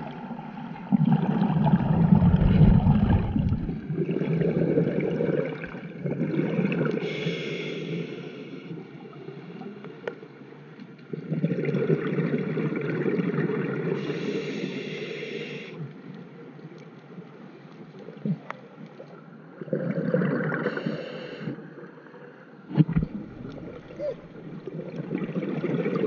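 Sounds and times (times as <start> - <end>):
diver exhaling bubbles underwater: 0.9 - 7.2, 19.6 - 21.2.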